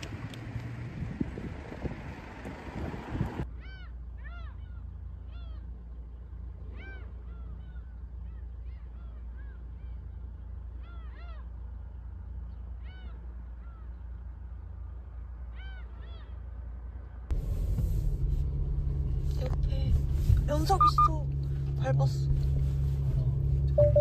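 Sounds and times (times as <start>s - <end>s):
low rumble: 0.0s - 24.0s
gulls calling: 3.5s - 16.7s.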